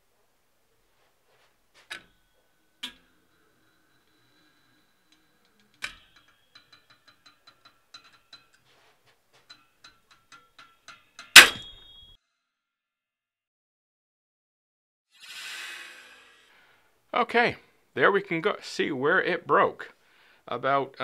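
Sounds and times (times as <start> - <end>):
metallic ring of scale: 1.8 - 8.8, 9.4 - 12.2.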